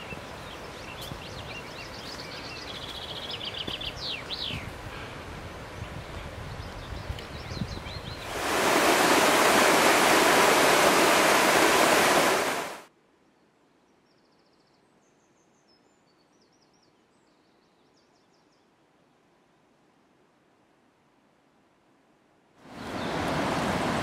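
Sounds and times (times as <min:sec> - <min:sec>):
small birds chirping: 0:00.0 - 0:04.8
fast-flowing water rushing: 0:08.3 - 0:12.9, 0:22.7 - 0:24.0.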